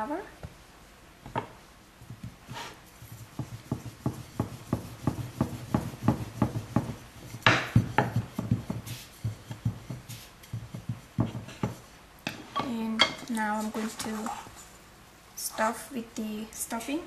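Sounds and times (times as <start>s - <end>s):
rolling pin scrape: 2.4s - 12.6s
rolling pin knocking on board: 3.2s - 11.8s.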